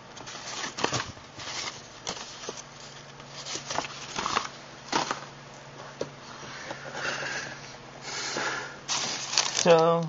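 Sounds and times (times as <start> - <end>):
faint steady hum: 0.0 - 10.0
packaging rustling and crinkling: 0.2 - 5.2, 8.9 - 10.0.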